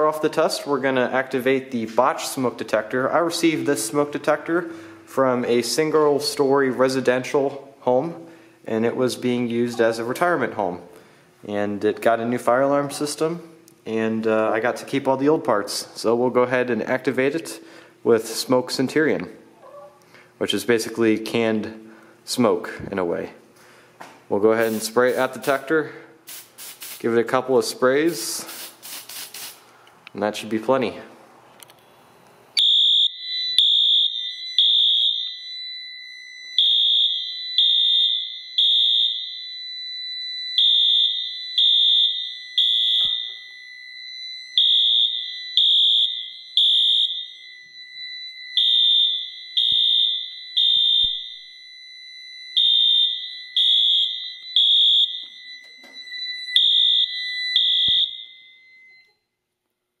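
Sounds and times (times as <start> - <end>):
fire alarm horn blasts: 32.6 - 59.4
steady high-pitched beep: 51.8 - 59.2.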